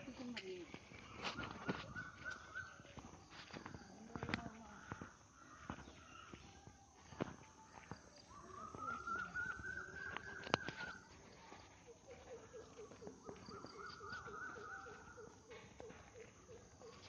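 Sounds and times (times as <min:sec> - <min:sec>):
animal calls: 0:01.0 - 0:03.0, 0:08.2 - 0:17.0.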